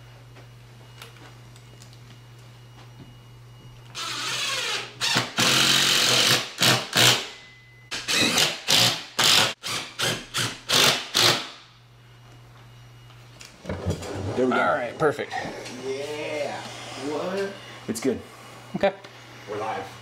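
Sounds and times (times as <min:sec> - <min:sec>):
cordless drill driving screws: 0:04.0 - 0:07.2, 0:07.9 - 0:11.5.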